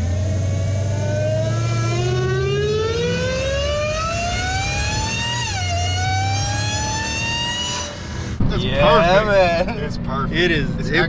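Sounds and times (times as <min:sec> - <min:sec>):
supercharger whine: 0:00.0 - 0:11.0
low engine rumble: 0:07.9 - 0:11.0.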